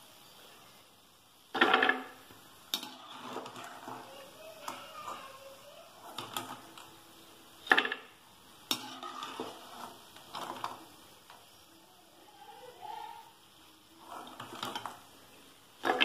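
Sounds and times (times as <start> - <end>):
hot oil sizzling: 0.0 - 16.0
metal spoon scraping a pan: 2.7 - 5.2, 5.9 - 6.9, 8.7 - 11.0, 14.0 - 15.2.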